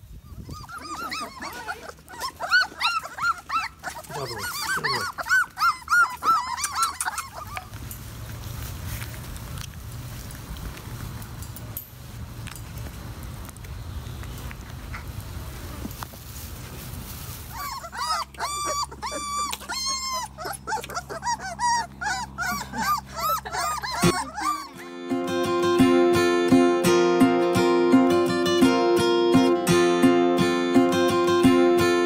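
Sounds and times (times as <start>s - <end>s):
puppies whining and yelping: 0.0s - 8.1s, 17.3s - 25.0s
acoustic guitar music: 24.0s - 32.0s.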